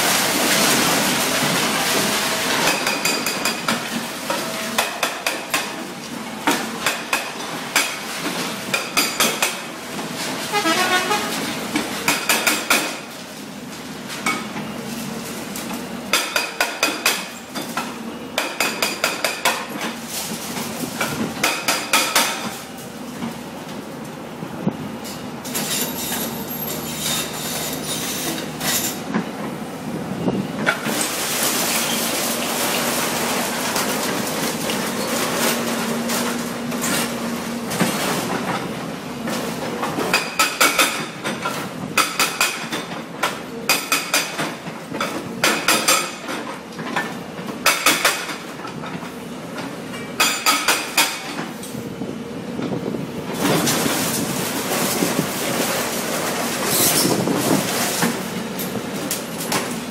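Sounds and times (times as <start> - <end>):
hydraulic breaker hammering concrete: 1.4 - 5.8, 6.4 - 8.1, 8.7 - 9.7, 11.7 - 13.1, 16.1 - 17.8, 18.4 - 19.8, 21.0 - 22.6, 40.1 - 44.6, 50.2 - 51.3.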